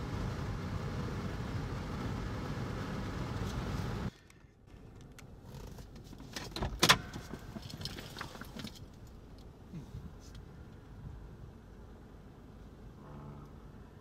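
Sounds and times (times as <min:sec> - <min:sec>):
faint low rumble: 0:08.8 - 0:14.0.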